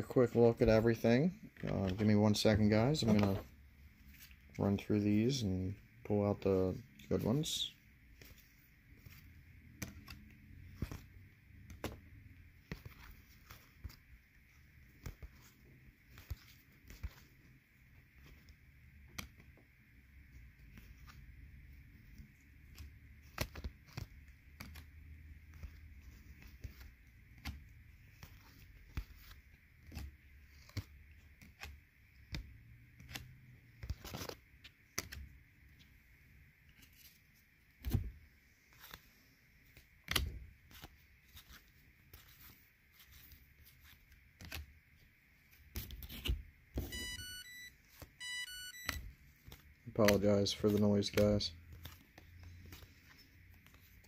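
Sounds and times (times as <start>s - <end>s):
cards flipping and tapping: 0.6s - 4.8s, 6.9s - 36.0s, 36.6s - 47.2s, 47.8s - 54.0s
electronic alarm beeps: 46.9s - 49.0s.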